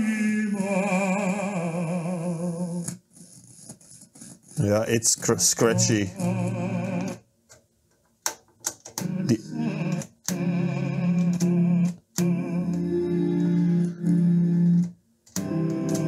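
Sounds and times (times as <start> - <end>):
classical music from radio: 4.6 - 7.2, 9.0 - 16.0
crackles from control contacts: 8.7 - 16.0.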